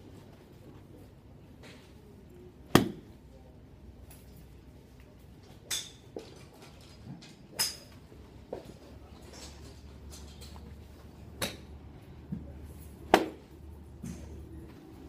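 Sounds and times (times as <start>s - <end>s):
golf club striking ball: 2.7s - 3.0s.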